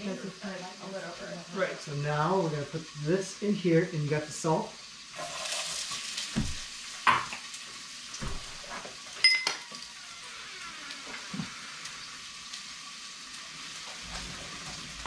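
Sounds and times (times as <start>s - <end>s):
fish sizzling in hot oil: 0.0s - 15.0s
metal utensil clink: 9.2s - 9.7s.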